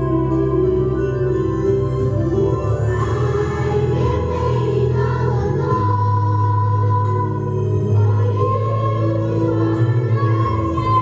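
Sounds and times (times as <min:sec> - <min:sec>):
children's chorus singing: 0:02.7 - 0:11.0.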